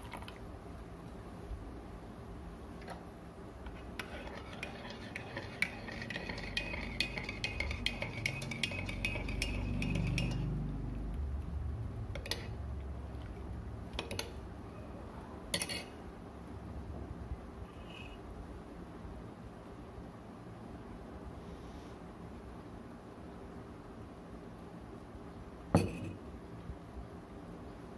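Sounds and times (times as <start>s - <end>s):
teaspoon clinking in a ceramic mug: 4.1s - 10.6s.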